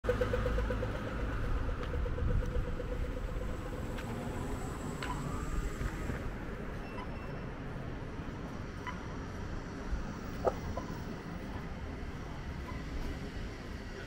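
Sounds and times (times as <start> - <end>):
rapid pulsing tone: 0.0 - 5.8
road vehicles passing: 0.0 - 14.0.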